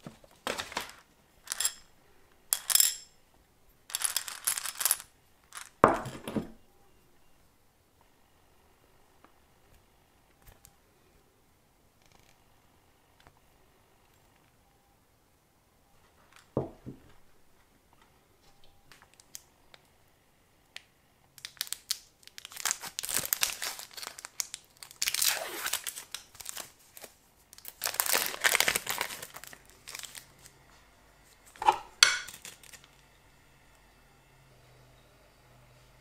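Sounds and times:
plastic wrapper crinkling: 21.4s - 30.5s, 32.2s - 33.0s.

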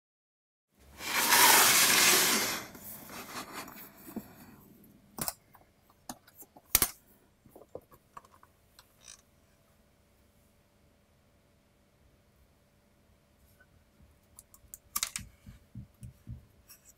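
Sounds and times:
metal case scraping on wood: 1.0s - 2.7s.

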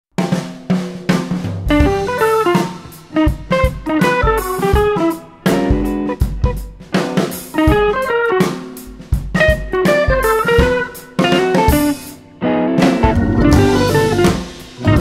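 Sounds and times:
drum kit: 0.1s - 15.0s
plucked string melody: 12.8s - 14.9s.

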